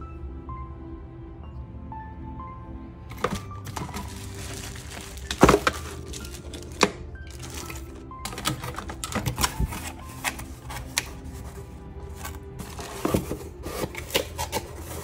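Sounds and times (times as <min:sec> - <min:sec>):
soft background music: 0:00.0 - 0:15.0
plastic bags rustling and clicking: 0:03.1 - 0:15.0.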